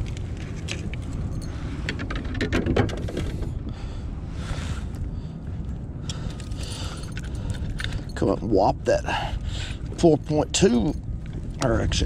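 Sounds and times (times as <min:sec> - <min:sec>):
steady low rumble: 0:00.0 - 0:12.0.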